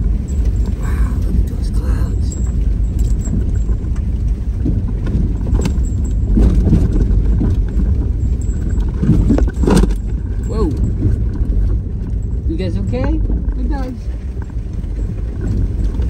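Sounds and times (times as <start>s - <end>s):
sharp knocks and rattles: 0.0s - 16.0s
vehicle rumbling: 0.0s - 16.0s.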